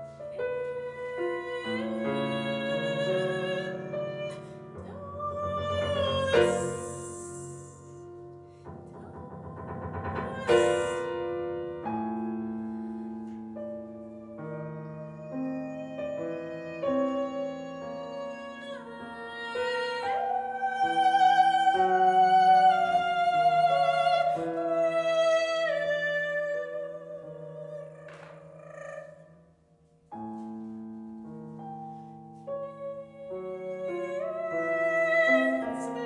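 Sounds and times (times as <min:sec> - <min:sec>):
soprano singing with vibrato: 0:00.0 - 0:08.0, 0:09.9 - 0:11.4, 0:14.2 - 0:29.3, 0:32.5 - 0:36.0
piano playing held notes: 0:00.0 - 0:28.9.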